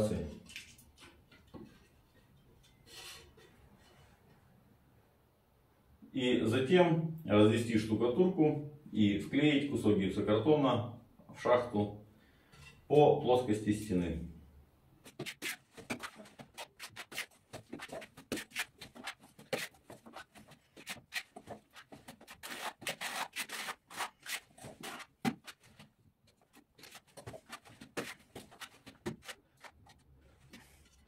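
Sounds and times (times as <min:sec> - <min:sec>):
spatula scraping plaster: 0:15.0 - 0:31.0.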